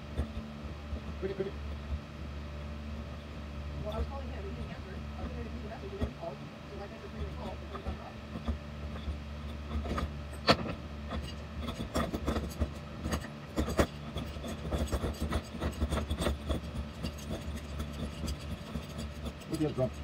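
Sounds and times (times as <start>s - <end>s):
low hum: 0.0s - 20.0s
metal rubbing and scraping: 3.0s - 20.0s
metal clinks and knocks: 7.2s - 20.0s.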